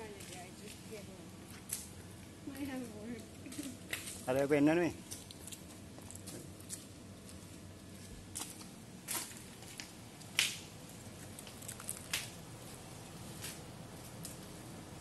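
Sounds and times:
low background hiss: 0:00.0 - 0:15.0
footsteps on gravel: 0:05.0 - 0:14.2.

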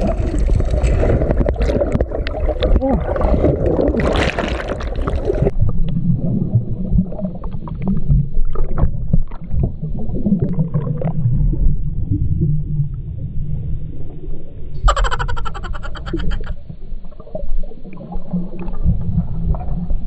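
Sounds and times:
underwater clicks and crackles: 0:00.0 - 0:06.0
water splashing and bubbling: 0:00.0 - 0:12.2
underwater rumble: 0:00.0 - 0:20.0.

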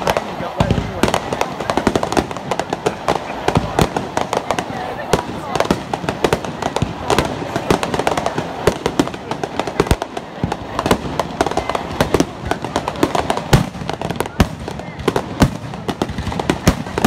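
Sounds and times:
fireworks bangs and crackling: 0:00.0 - 0:17.0.

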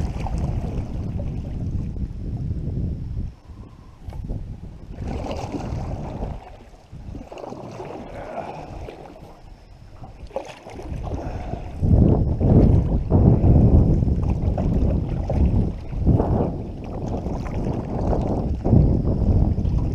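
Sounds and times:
paddle strokes in water: 0:00.0 - 0:02.1, 0:03.4 - 0:19.9
water gurgling along hull: 0:00.0 - 0:19.9
wind buffeting microphone: 0:00.0 - 0:19.9.

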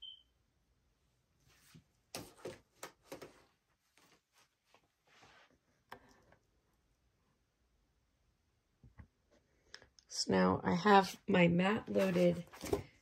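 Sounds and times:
soft brushing: 0:03.8 - 0:05.8, 0:11.9 - 0:12.9.

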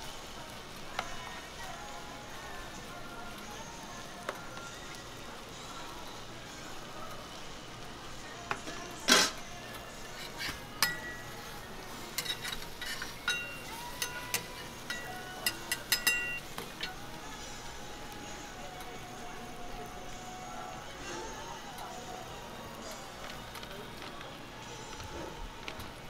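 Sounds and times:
steady background hiss: 0:00.0 - 0:26.0
metal utensils clinking on griddle: 0:08.4 - 0:19.8.

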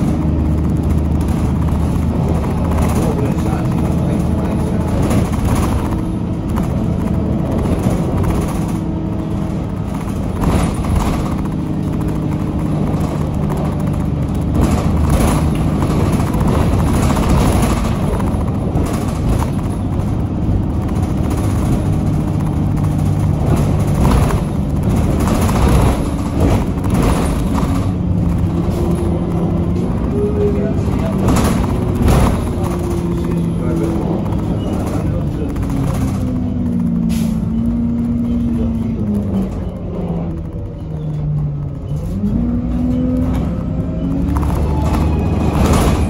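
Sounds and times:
bus engine and turbo whine: 0:00.0 - 0:46.0
knocks and rattles: 0:00.0 - 0:46.0.

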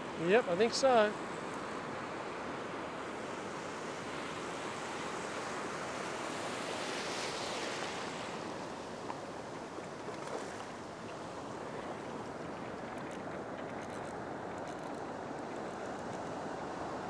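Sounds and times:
small surf breaking: 0:04.2 - 0:16.2.

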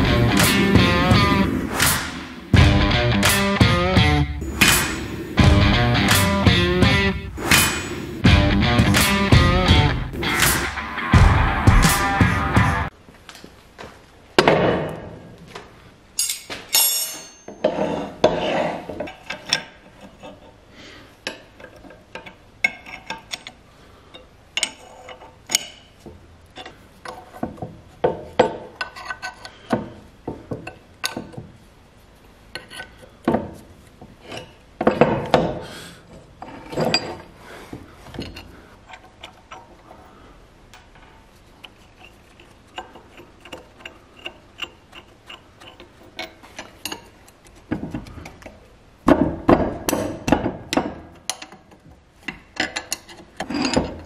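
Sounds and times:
metal parts clanking: 0:16.2 - 0:17.8, 0:36.4 - 0:37.3.

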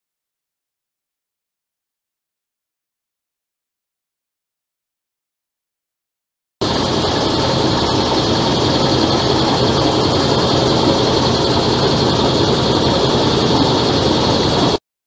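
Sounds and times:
diesel engine running: 0:06.6 - 0:14.8.

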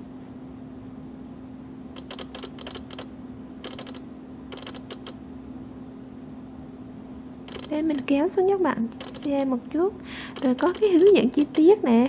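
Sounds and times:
steady low hum: 0:00.0 - 0:12.0
computer keys or mouse clicking: 0:02.0 - 0:05.2, 0:07.5 - 0:08.1, 0:09.0 - 0:09.3, 0:10.3 - 0:11.6.

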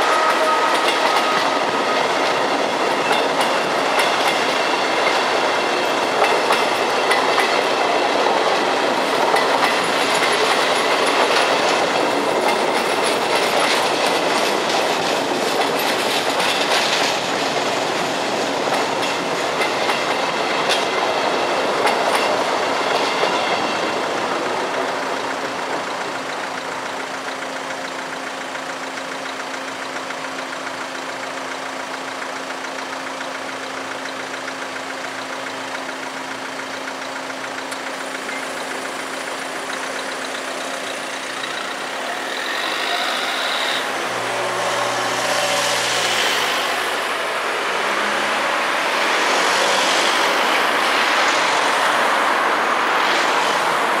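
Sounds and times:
cars driving over tracks: 0:00.0 - 0:54.0
car engines idling: 0:25.0 - 0:42.4.

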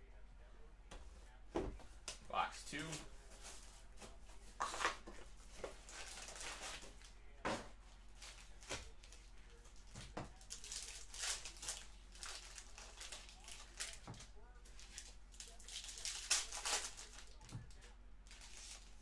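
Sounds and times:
foil packs crinkling and ripping: 0:05.8 - 0:06.9, 0:10.3 - 0:14.2, 0:14.8 - 0:17.5, 0:18.3 - 0:19.0.

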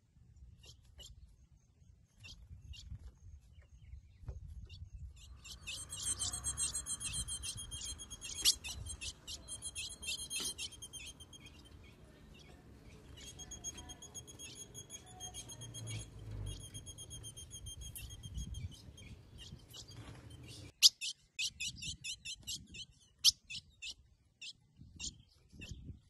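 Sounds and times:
bird twittering calls: 0:03.6 - 0:26.0
bird chips: 0:05.2 - 0:21.6.

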